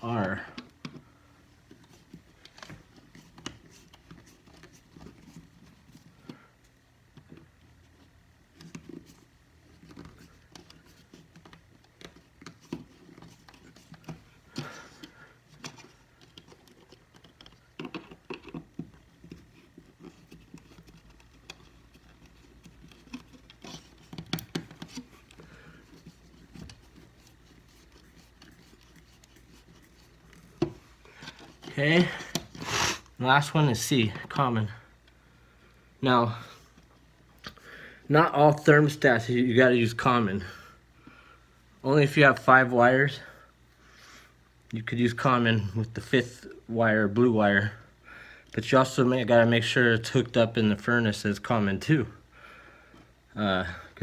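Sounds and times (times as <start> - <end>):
faint clicks and taps: 0.2 - 32.6.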